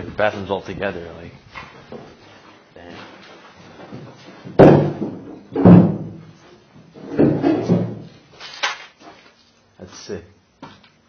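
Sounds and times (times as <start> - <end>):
loud bangs in a room: 4.5 - 6.3.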